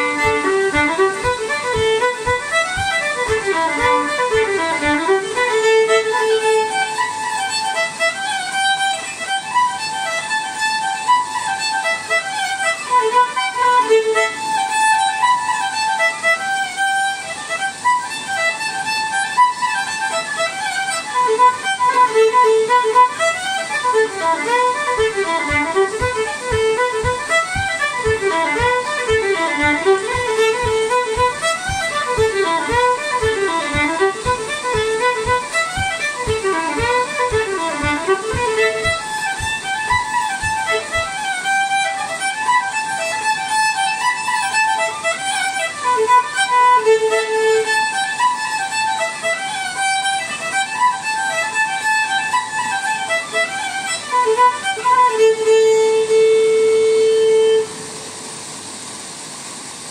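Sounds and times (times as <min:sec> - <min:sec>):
regular low thump: 0:00.0 - 0:05.2, 0:24.4 - 0:41.1
solo fiddle tune: 0:00.0 - 0:58.6.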